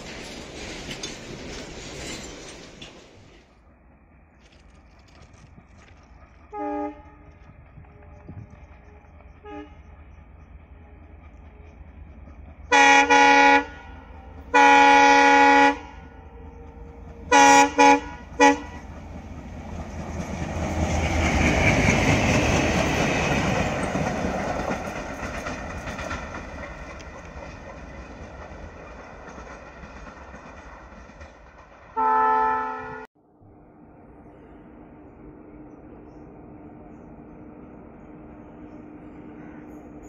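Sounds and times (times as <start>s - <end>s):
train wheels clattering on rails: 0.0s - 3.5s, 4.3s - 15.4s, 16.4s - 32.0s
locomotive horn blasts: 6.5s - 7.3s, 8.8s - 9.9s, 12.7s - 16.6s, 17.3s - 18.9s, 32.0s - 33.1s.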